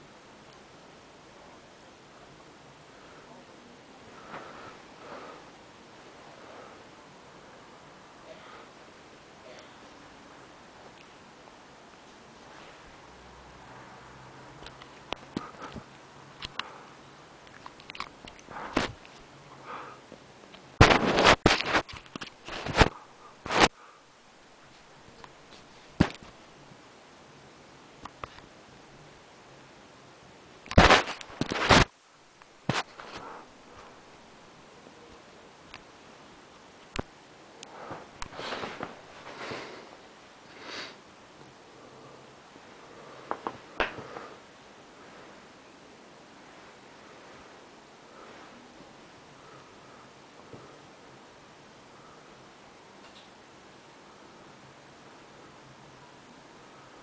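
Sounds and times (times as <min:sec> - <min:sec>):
faint clicks and rustles: 0:14.6 - 0:23.9, 0:30.6 - 0:34.3.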